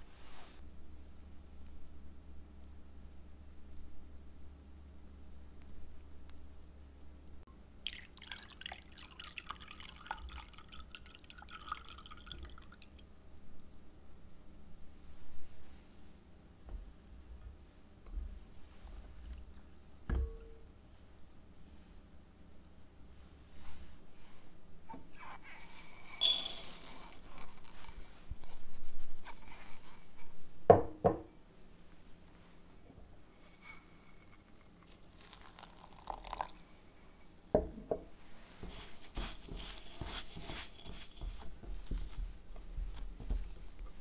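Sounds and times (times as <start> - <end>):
liquid dripping and bubbling: 7.8 - 13.1, 35.0 - 36.6
kitchenware clinking: 25.9 - 28.1.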